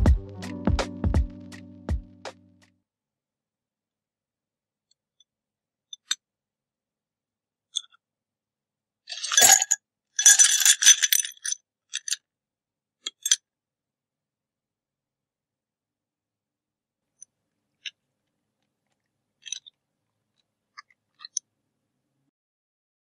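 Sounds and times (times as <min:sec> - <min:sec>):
ice cubes poured into a glass: 0:09.1 - 0:11.4.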